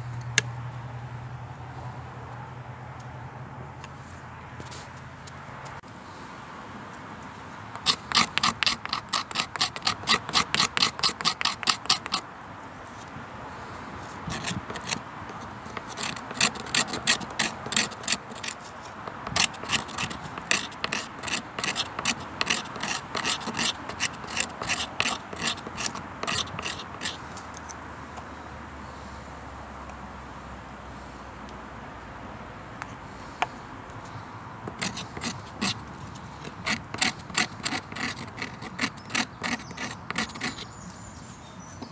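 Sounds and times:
knife scraping wood: 7.7 - 12.2, 14.0 - 27.8, 32.8 - 41.9.

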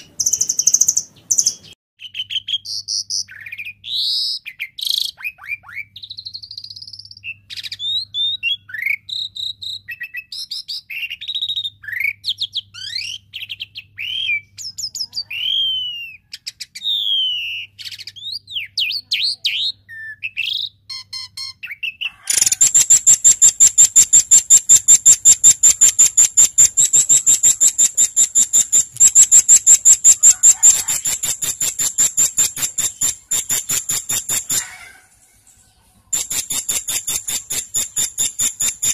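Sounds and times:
songbird chirps and whistles: 0.0 - 35.1, 36.1 - 38.9
fast high bird rattle: 22.4 - 35.0, 36.1 - 38.9.

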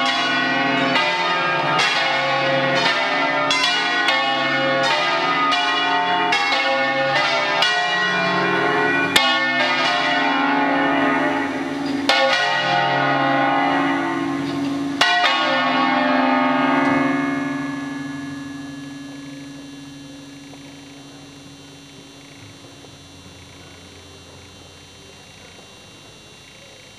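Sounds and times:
church bells ringing a peal: 0.0 - 26.9.

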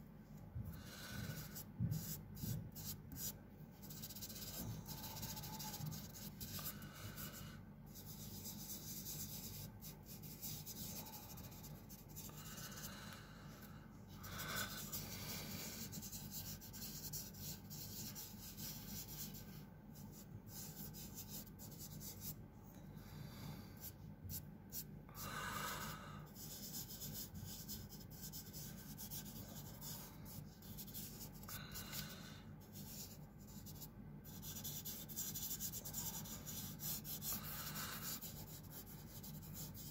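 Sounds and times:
fingers rubbing on paper: 1.0 - 7.3, 7.9 - 12.3, 14.6 - 22.4, 26.3 - 31.5, 32.7 - 39.9.

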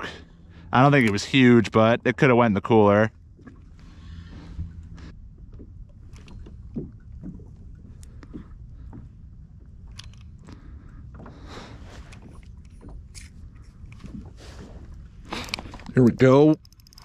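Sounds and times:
low rumble: 0.0 - 16.7
fishing gear knocking and clicking: 15.3 - 17.0.

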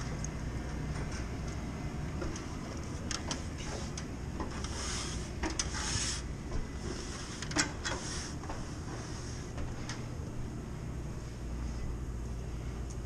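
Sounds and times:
low background hum: 0.0 - 13.0
rustling scrapes: 4.5 - 9.6.

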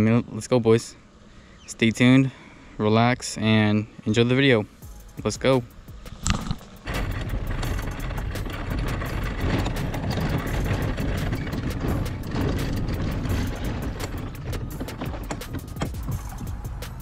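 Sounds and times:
cart wheels rumbling on asphalt: 5.5 - 17.0
hull and gear rattling: 5.5 - 17.0.

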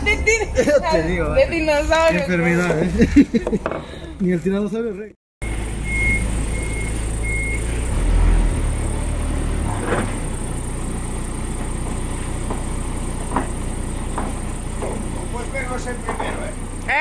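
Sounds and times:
engine idling: 8.9 - 17.0
knocks and clanks: 11.6 - 15.2, 16.0 - 16.5.

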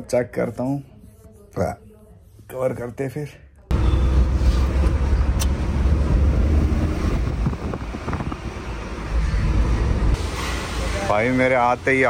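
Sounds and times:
motor vehicle running: 3.7 - 10.2
traffic noise: 3.7 - 12.0
wind on microphone: 6.3 - 8.8.

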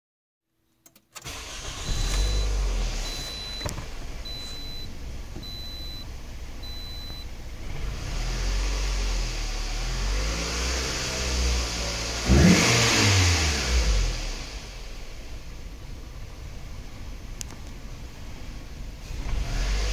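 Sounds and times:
car engine starting and idling: 0.9 - 19.9
car engine revving: 1.2 - 15.4, 19.0 - 19.9
dashboard chime beeping: 1.9 - 7.3.

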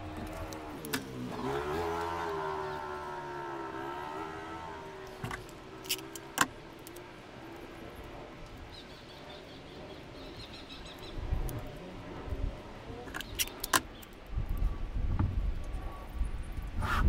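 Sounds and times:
backing paper peeling and rustling: 5.0 - 7.2.

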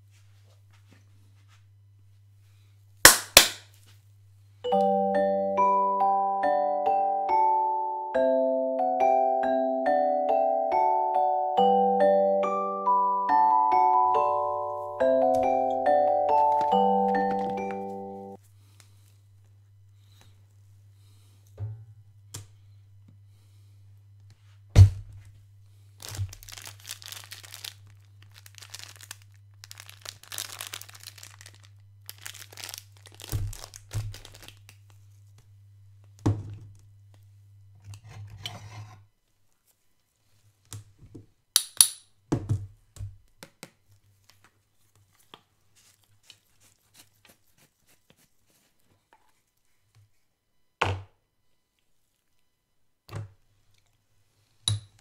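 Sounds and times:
low electrical hum: 15.0 - 46.8.

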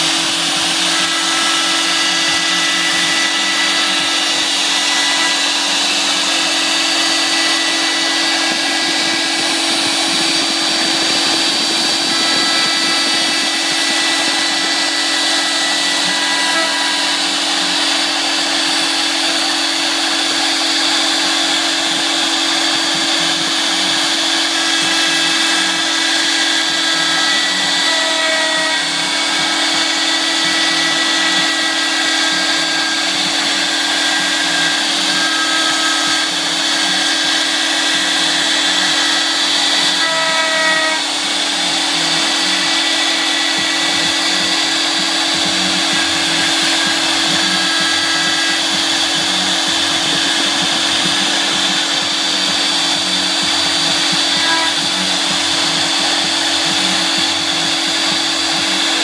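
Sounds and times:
cutter chattering through wood: 0.0 - 40.0
router spindle motor whine: 0.0 - 59.0.

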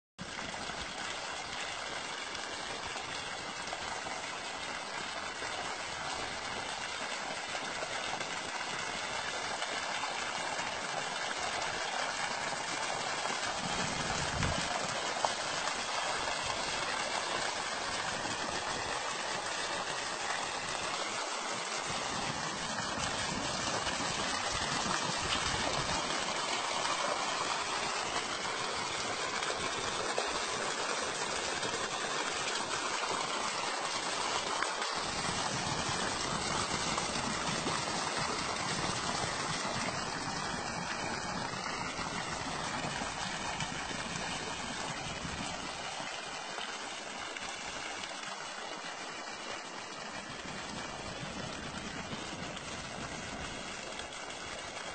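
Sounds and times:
water gushing and splashing: 0.2 - 54.9.

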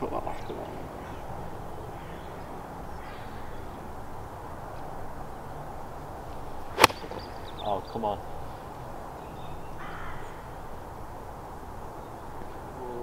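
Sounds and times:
quiet open-air hum: 0.0 - 13.0
golf club striking ball: 6.5 - 7.6.

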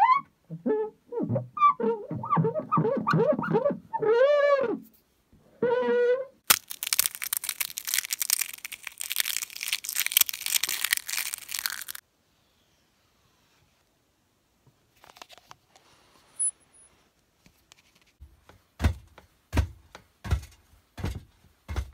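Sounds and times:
fingertip squeaking on blind: 0.0 - 4.9, 5.6 - 6.4
sponge crushed crackling: 6.4 - 12.0.

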